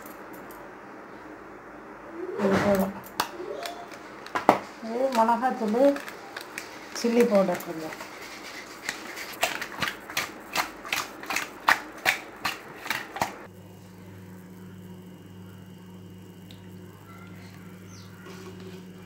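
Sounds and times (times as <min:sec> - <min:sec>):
steady low hum: 0:00.0 - 0:19.0
hand rubbing fish in bowl: 0:05.2 - 0:13.4.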